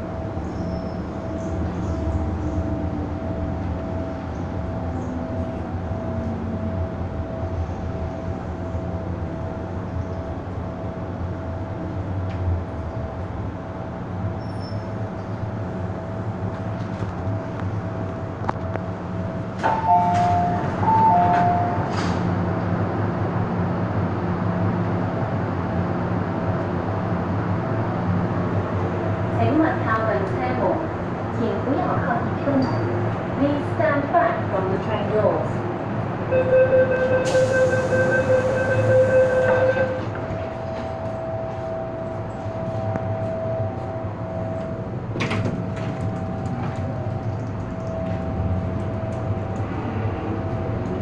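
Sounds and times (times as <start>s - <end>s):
train running with electric hum: 0.0s - 51.0s.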